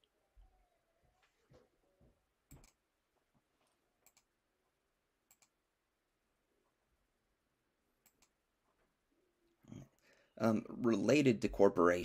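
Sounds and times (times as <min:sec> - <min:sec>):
faint computer mouse clicks: 0:04.0 - 0:04.3, 0:05.3 - 0:05.5, 0:08.0 - 0:08.3.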